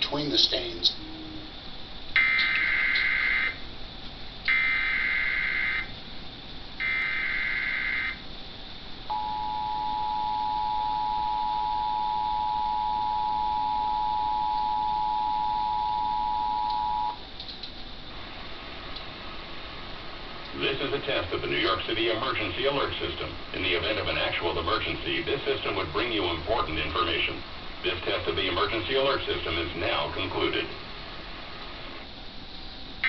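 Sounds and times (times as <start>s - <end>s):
two-tone attention signal: 9.1s - 17.2s.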